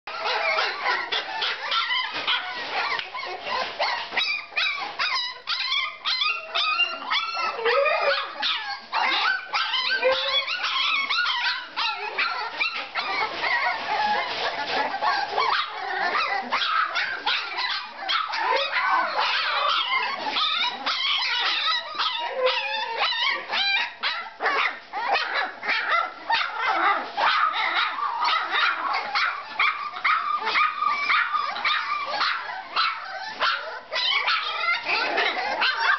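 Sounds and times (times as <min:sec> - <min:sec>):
puppies whining and yelping: 0:00.1 - 0:35.9.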